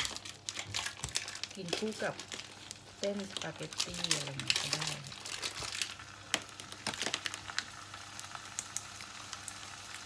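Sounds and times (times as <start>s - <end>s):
packaging crinkling: 0.0s - 9.6s.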